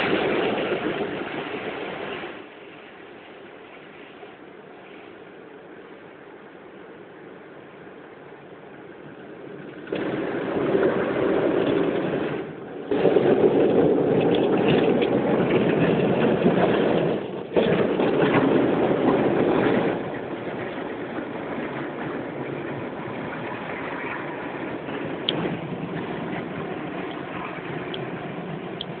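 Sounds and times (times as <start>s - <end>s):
car wash rushing noise: 0.0s - 29.0s
car running: 7.5s - 29.0s.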